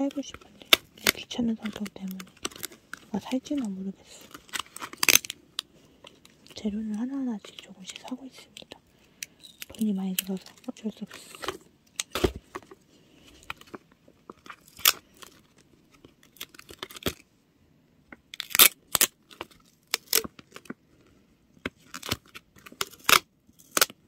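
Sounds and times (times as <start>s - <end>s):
paper handling: 0.0s - 8.1s
adhesive tape ripping off roll: 4.2s - 5.4s, 14.5s - 15.1s, 18.4s - 20.7s, 21.8s - 24.0s.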